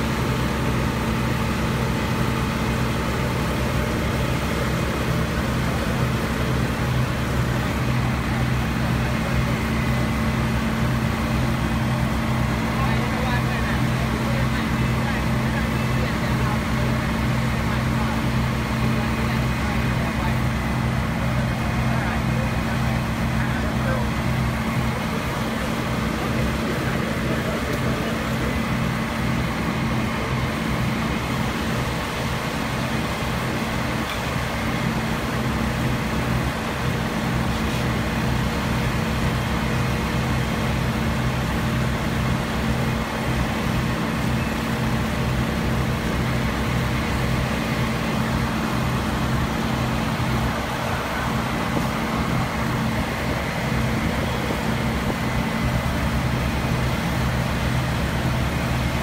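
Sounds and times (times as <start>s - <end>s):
diesel engine running steadily: 0.0s - 59.0s.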